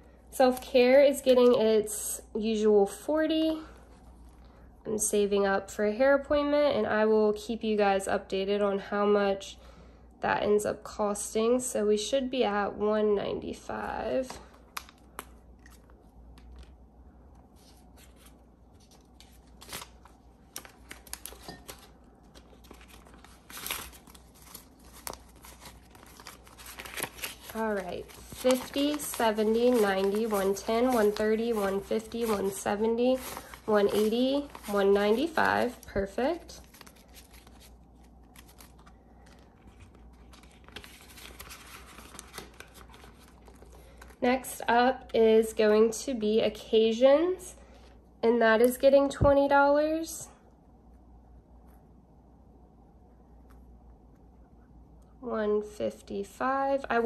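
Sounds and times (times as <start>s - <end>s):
banknotes and plastic pouch rustling: 17.5s - 44.2s.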